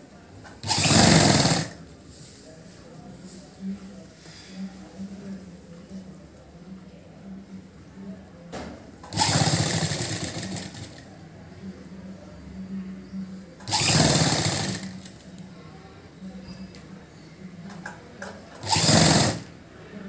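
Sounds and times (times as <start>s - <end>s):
sewing machine stitching: 0.6s - 1.8s, 9.0s - 11.0s, 13.6s - 15.2s, 18.6s - 19.5s.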